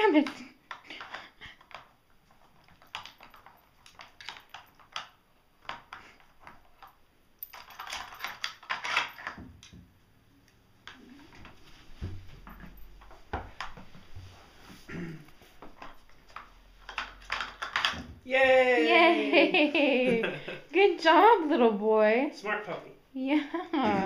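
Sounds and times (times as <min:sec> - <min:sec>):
plastic covers clicking and knocking: 0:15.6 - 0:18.2.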